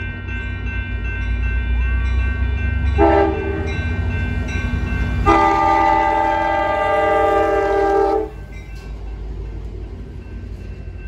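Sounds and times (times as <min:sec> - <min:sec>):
passing train rumble: 0:00.0 - 0:11.0
train horn: 0:03.0 - 0:03.7, 0:05.2 - 0:08.4.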